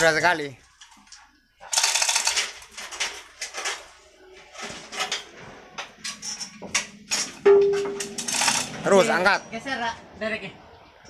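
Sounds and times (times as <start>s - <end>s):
metal chain clinking and rattling: 6.1s - 9.0s.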